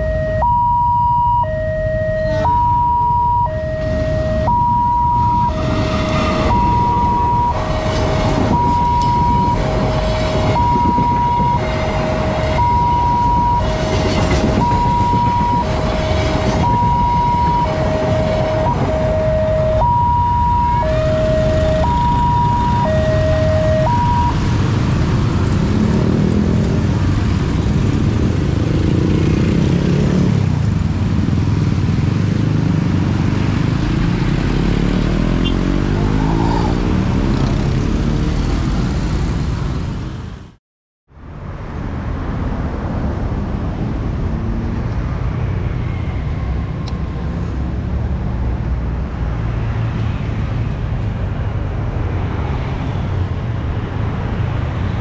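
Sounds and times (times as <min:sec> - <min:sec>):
two-tone crossing alarm: 0:00.0 - 0:24.4
motorcycle and car engines revving: 0:01.5 - 0:40.4
passing train rumble: 0:01.8 - 0:40.5, 0:41.2 - 0:55.0.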